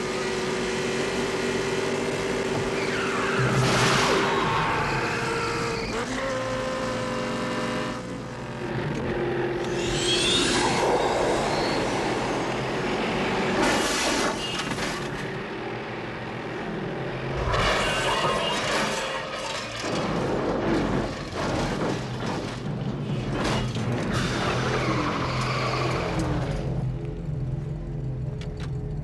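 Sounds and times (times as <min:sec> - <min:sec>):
car engine running hard: 0:00.0 - 0:21.4.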